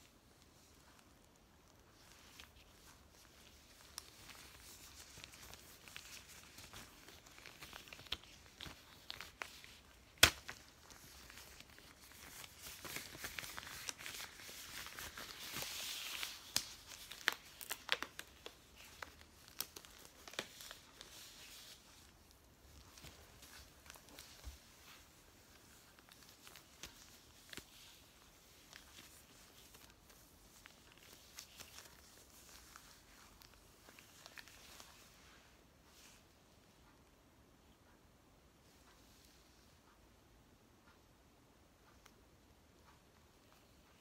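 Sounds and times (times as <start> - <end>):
latex gloves rubbing and crinkling: 0.0 - 36.3
latex snapping: 10.1 - 10.6.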